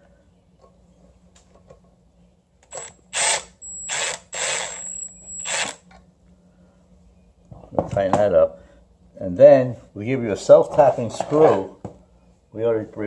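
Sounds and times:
power ratchet whine: 2.7 - 5.9.

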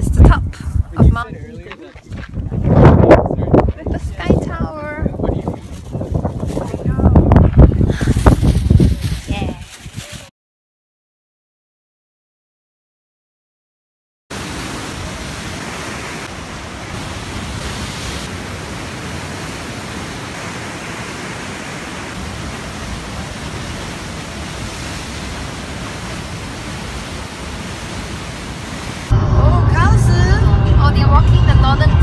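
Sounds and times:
white water rushing: 14.3 - 29.2.

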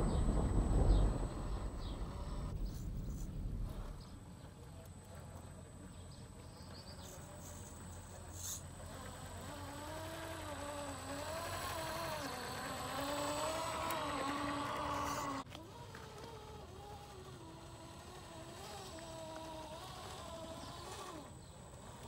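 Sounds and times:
toy car electric motor whine: 1.5 - 2.8, 7.0 - 22.0.

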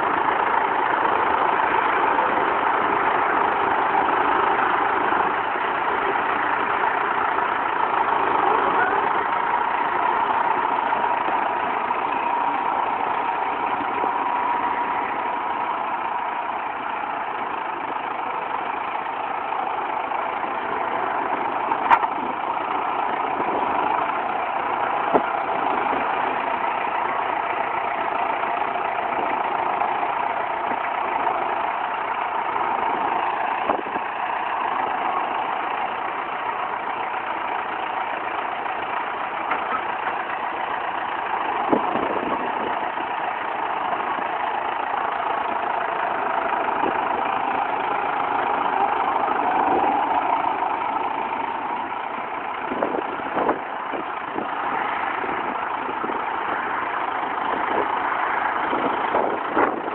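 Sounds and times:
tractor diesel engine running: 0.0 - 59.9.

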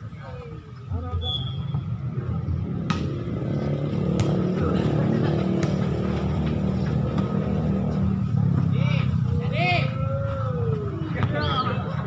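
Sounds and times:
vehicle engine rumbling: 0.0 - 12.0
volleyball being hit: 2.8 - 3.3, 4.1 - 4.4.

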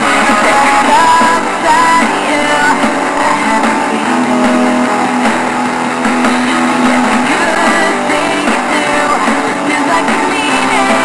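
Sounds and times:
song with guitar: 0.0 - 11.0.

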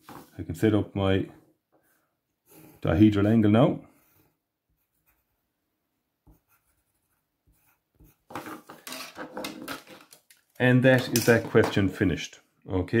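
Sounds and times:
pencil scratching on paper: 4.0 - 5.6, 6.2 - 9.4.

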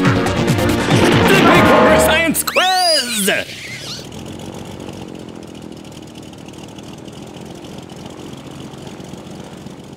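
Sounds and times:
engine running with fast rattle: 3.1 - 9.9.

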